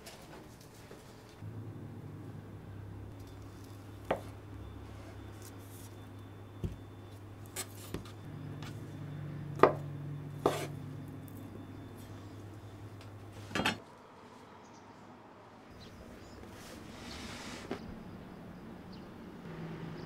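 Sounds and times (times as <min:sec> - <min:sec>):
knife cutting on wooden board: 0:10.4 - 0:10.7.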